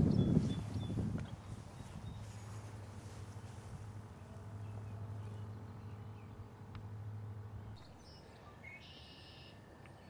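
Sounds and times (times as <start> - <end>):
steady low hum: 0.0 - 10.0
bird calling: 7.8 - 9.7.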